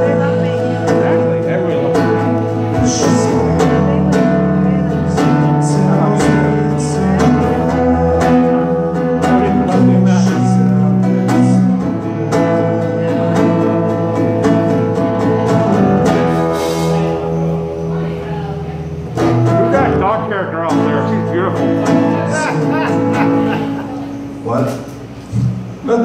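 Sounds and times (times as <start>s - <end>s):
man singing into a microphone: 0.0s - 14.0s
acoustic guitar: 0.0s - 26.0s.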